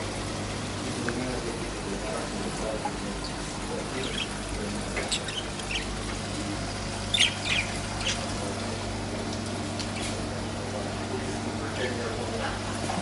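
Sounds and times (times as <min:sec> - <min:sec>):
steady low hum: 0:00.0 - 0:13.0
small birds chirping: 0:02.7 - 0:10.3.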